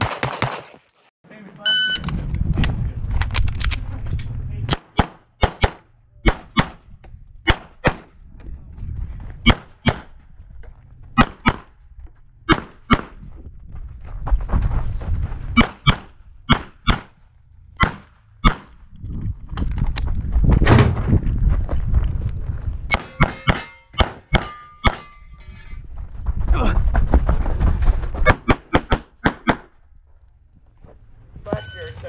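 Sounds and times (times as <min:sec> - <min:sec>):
pistol shots: 0:04.7 - 0:06.8, 0:07.4 - 0:08.1, 0:09.4 - 0:10.1, 0:11.2 - 0:11.7, 0:12.5 - 0:13.2, 0:15.6 - 0:17.2, 0:17.8 - 0:18.7, 0:22.9 - 0:25.1, 0:28.3 - 0:29.7.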